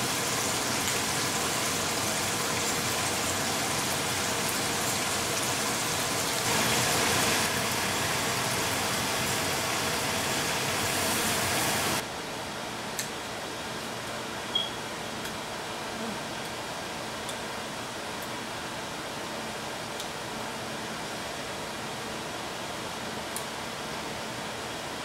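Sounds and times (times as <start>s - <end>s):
steady hissing noise: 0.0s - 13.6s.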